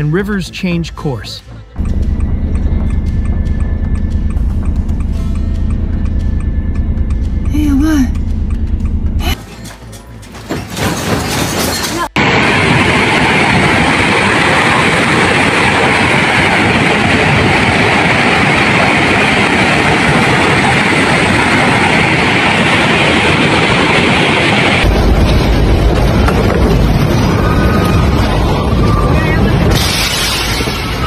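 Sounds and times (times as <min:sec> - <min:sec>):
deep low rumble: 0:01.8 - 0:09.4, 0:12.2 - 0:31.0
landslide roaring: 0:12.2 - 0:31.0.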